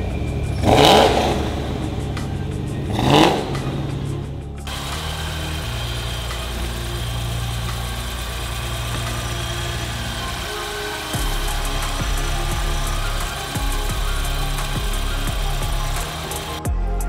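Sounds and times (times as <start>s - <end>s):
car engine revving: 0.0s - 16.7s.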